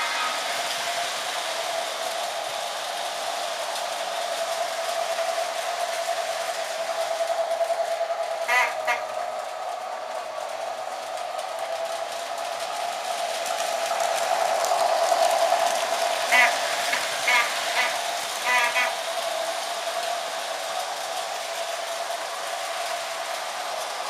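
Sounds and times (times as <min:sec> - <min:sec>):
toy train horn toots: 0:00.0 - 0:00.6, 0:08.4 - 0:09.4, 0:16.3 - 0:19.1
toy train motor whir: 0:00.0 - 0:24.0.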